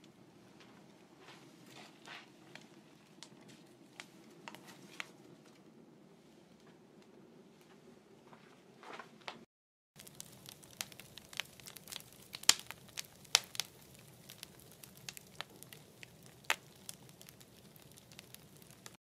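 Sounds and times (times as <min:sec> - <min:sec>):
wood fire crackling and popping: 0:00.0 - 0:07.2, 0:10.0 - 0:19.0.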